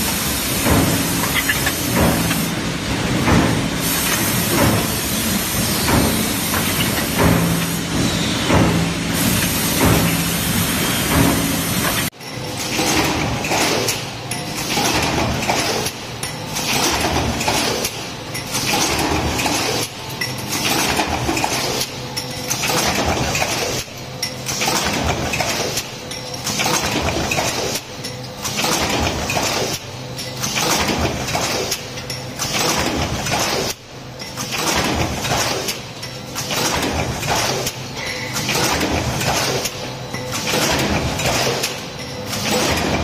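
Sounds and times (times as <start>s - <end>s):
metal parts clinking: 1.2s - 2.5s.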